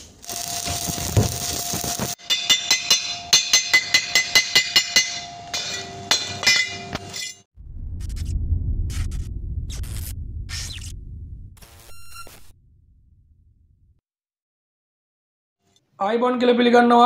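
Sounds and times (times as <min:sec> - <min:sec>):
welding arc crackling: 0:00.0 - 0:02.2, 0:11.6 - 0:12.6.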